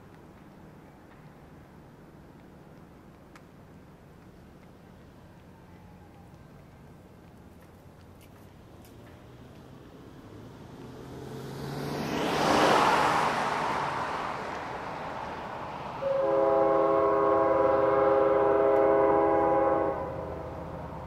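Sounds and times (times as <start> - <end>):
car passing with tyre noise: 0.0 - 21.0
locomotive air horn chord: 16.0 - 20.5.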